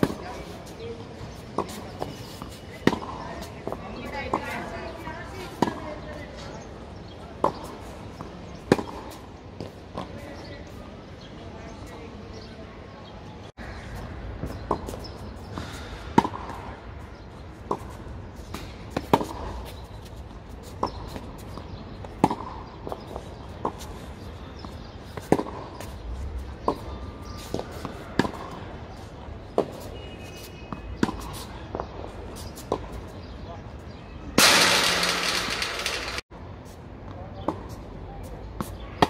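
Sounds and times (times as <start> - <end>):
tennis ball bouncing on court: 0.0 - 0.4, 1.6 - 6.4, 7.4 - 10.5, 14.4 - 19.8, 20.8 - 23.9, 24.6 - 26.0, 26.6 - 28.6, 30.7 - 33.0
tennis ball hit by rackets: 1.6 - 4.6, 7.4 - 10.1, 20.8 - 23.9, 25.1 - 25.9, 26.6 - 28.6, 34.4 - 36.2.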